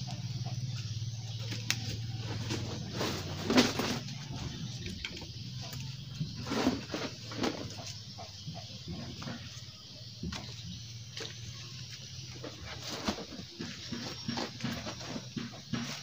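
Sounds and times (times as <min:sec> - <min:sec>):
bamboo poles knocking: 0:13.2 - 0:16.0.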